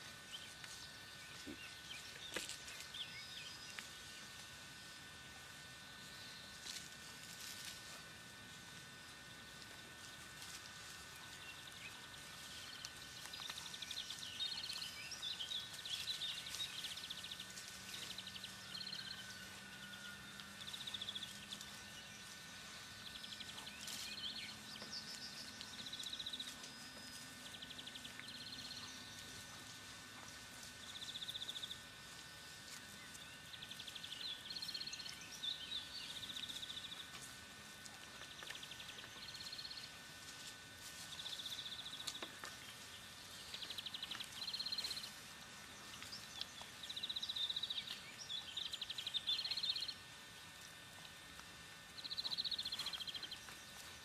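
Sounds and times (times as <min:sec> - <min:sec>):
thin steady high whine: 0:00.0 - 0:54.0.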